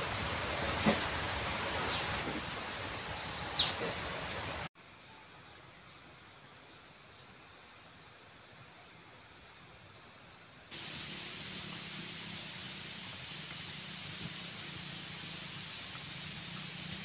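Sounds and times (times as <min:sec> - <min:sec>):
high-pitched insect drone: 0:00.0 - 0:04.7
falling bird calls: 0:03.1 - 0:04.6.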